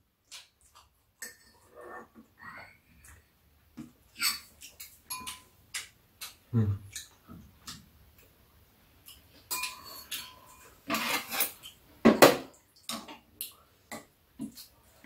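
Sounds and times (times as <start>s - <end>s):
metal cutlery clinking on bowls: 4.1s - 7.2s, 9.0s - 11.8s.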